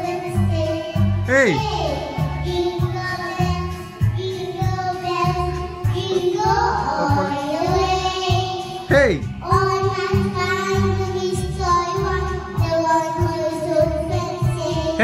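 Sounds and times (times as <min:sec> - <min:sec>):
girls singing karaoke: 0:00.0 - 0:15.0
backing track with bass beat: 0:01.3 - 0:01.7, 0:05.3 - 0:07.5, 0:08.9 - 0:09.4.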